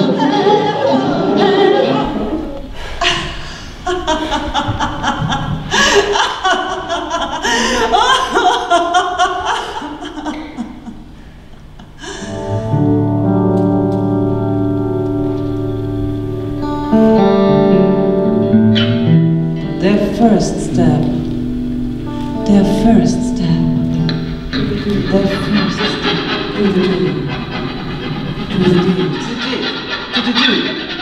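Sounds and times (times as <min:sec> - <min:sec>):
performance music: 0:00.0 - 0:31.0
steady held tones: 0:00.0 - 0:31.0
person singing and chuckling: 0:03.0 - 0:11.0.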